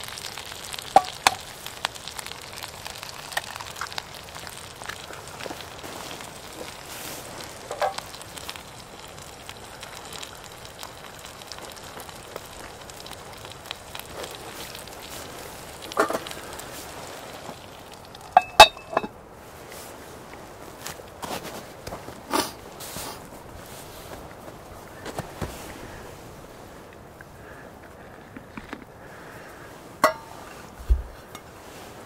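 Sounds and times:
food sizzling in a pan: 0:00.0 - 0:19.1
metal lid clanking on pan: 0:18.4 - 0:19.1, 0:30.0 - 0:30.3.

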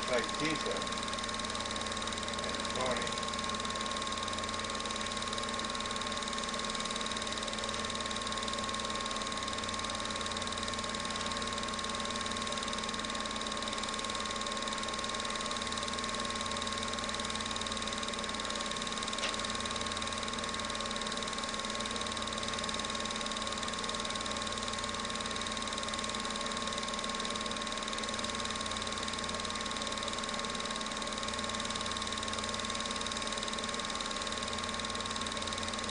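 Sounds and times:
film projector whirring: 0:00.0 - 0:35.9.

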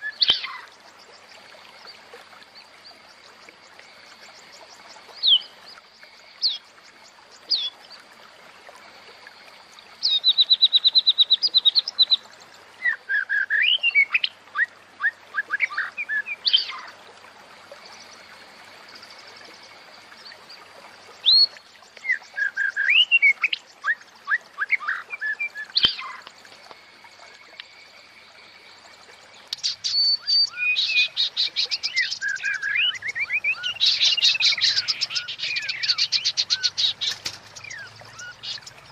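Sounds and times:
bird chirps and trills: 0:00.0 - 0:01.2, 0:21.2 - 0:26.3, 0:29.4 - 0:38.9.

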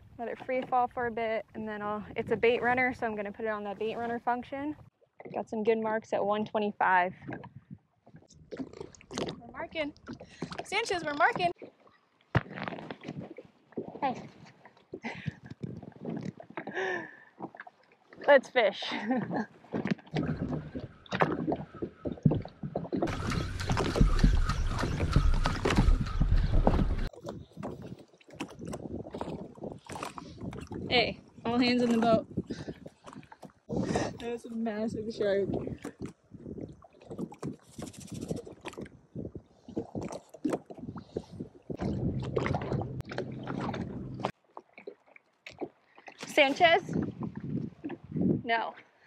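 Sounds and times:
water slapping against hull: 0:06.5 - 0:48.5
knocks and splashes: 0:07.0 - 0:34.2, 0:34.9 - 0:48.4
low rumble: 0:41.8 - 0:44.3.

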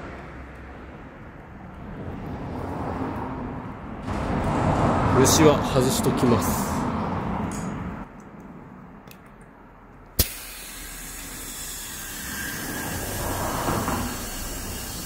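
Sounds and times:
compressed air hissing into tyre: 0:10.2 - 0:15.0.

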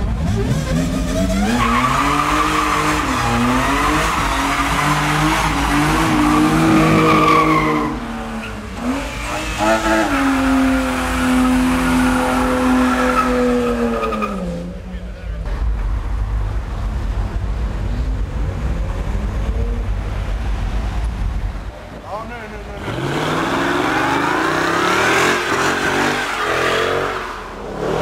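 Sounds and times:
car engines revving hard: 0:00.0 - 0:28.0
tyres squealing: 0:00.6 - 0:14.6.

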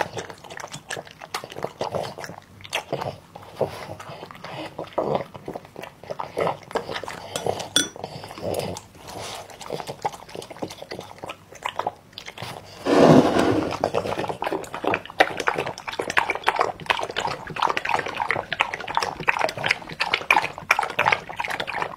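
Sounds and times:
dog chewing and smacking: 0:00.0 - 0:12.8, 0:13.8 - 0:21.9
dog slurping and lapping: 0:00.0 - 0:13.1, 0:13.7 - 0:21.9.

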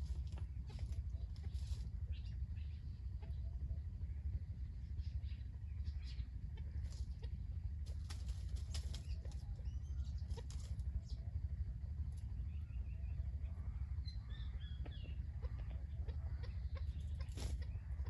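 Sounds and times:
bird scratching in leaves: 0:00.0 - 0:02.0, 0:07.8 - 0:09.4
dry leaves rustling: 0:00.0 - 0:02.1, 0:07.8 - 0:09.4
steady low rumble: 0:00.0 - 0:18.0.

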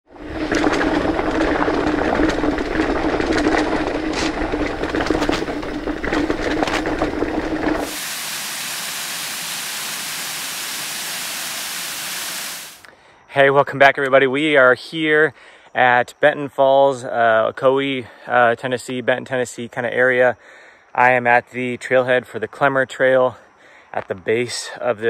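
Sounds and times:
bike tyres on rocky trail: 0:00.1 - 0:12.8
waterfall rushing: 0:07.8 - 0:12.8.

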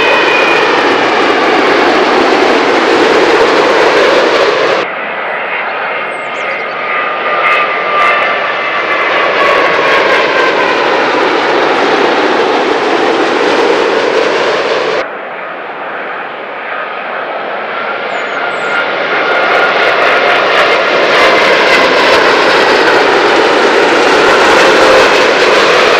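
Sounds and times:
jet airliner engines on approach: 0:00.0 - 0:25.9.

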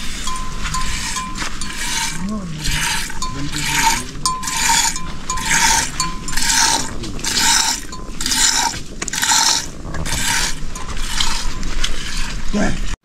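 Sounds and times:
rhythmic scraping strokes: 0:00.0 - 0:13.0.

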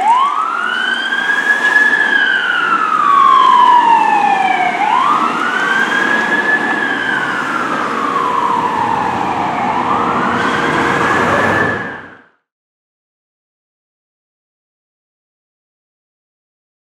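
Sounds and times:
truck and road rumble: 0:00.0 - 0:12.3
fire truck siren wailing: 0:00.0 - 0:12.4.

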